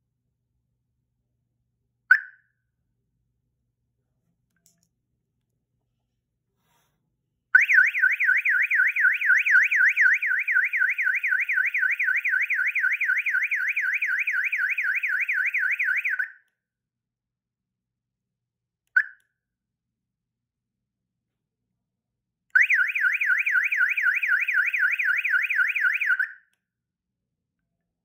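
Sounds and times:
alarm siren wailing: 0:07.6 - 0:16.3, 0:22.6 - 0:26.4.

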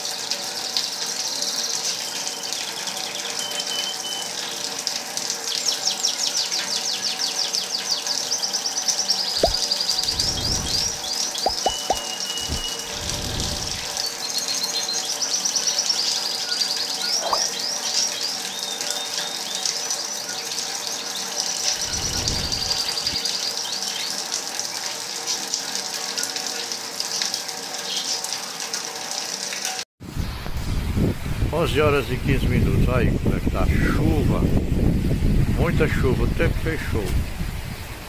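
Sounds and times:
rain falling and splashing: 0:00.0 - 0:29.8
low rumble: 0:09.4 - 0:11.0
quick high chirps: 0:09.4 - 0:12.9.

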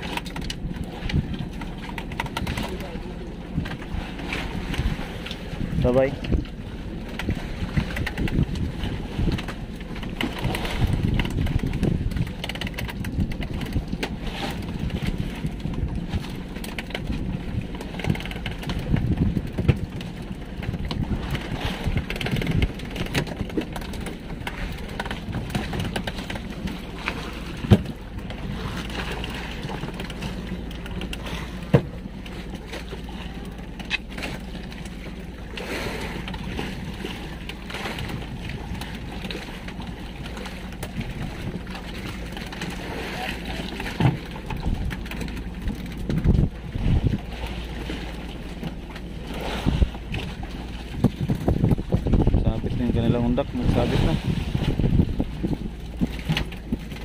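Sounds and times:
small boat engine: 0:00.0 - 0:57.0
wind on microphone: 0:02.2 - 0:28.9, 0:42.7 - 0:48.5, 0:49.2 - 0:57.0.

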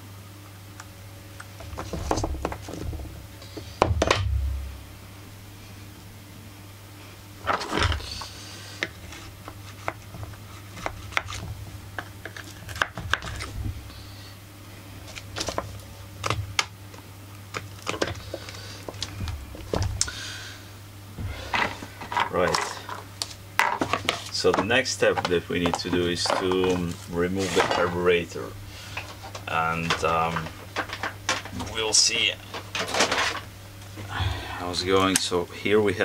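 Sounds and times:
steady low hum: 0:00.0 - 0:36.0.

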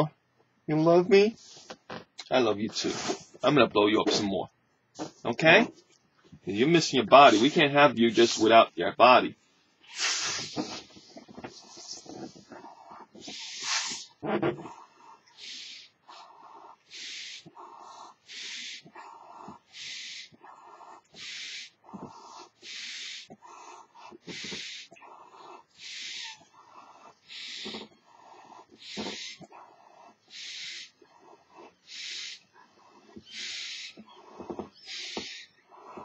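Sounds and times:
puff blown into balloon: 0:02.8 - 0:03.3, 0:09.9 - 0:16.3, 0:16.9 - 0:17.5, 0:19.7 - 0:20.4, 0:21.2 - 0:25.0, 0:25.8 - 0:26.4, 0:27.2 - 0:29.5, 0:30.3 - 0:31.1, 0:31.7 - 0:32.4, 0:33.3 - 0:36.0
person inhaling: 0:09.9 - 0:36.0.

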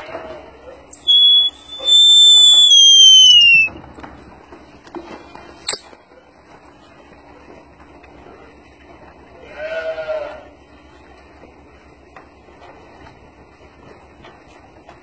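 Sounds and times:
loud herding whistle: 0:00.9 - 0:03.8.

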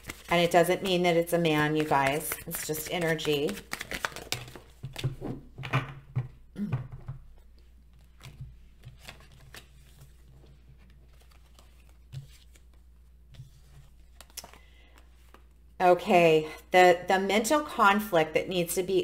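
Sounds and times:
cards shuffling: 0:00.0 - 0:05.5, 0:07.9 - 0:15.6.

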